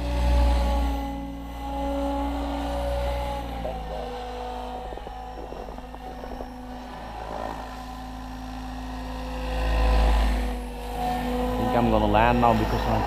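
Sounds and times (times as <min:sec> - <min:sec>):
model helicopter rotor whine: 0:00.0 - 0:13.0
low rumble: 0:02.1 - 0:10.6.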